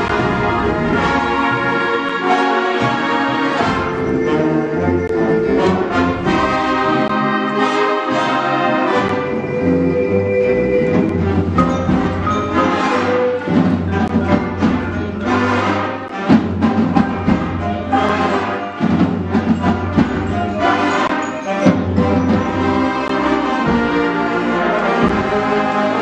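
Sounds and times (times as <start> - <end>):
concert band playing mambo: 0.0 - 26.0
sharp percussion hits: 10.8 - 24.2.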